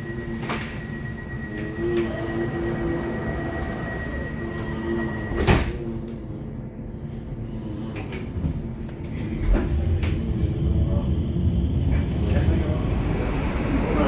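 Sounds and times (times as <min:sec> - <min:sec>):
high warning tone: 0:00.0 - 0:05.4.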